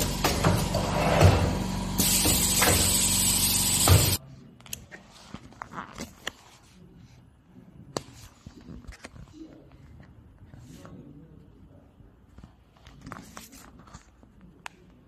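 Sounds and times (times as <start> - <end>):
machine humming and hissing: 0.0 - 4.2
heavy machine thumps: 3.7 - 4.2.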